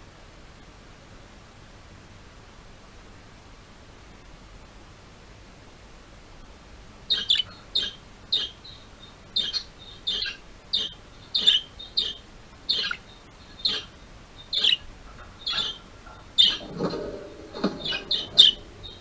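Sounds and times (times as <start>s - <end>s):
budgies chirping: 7.1s - 19.0s.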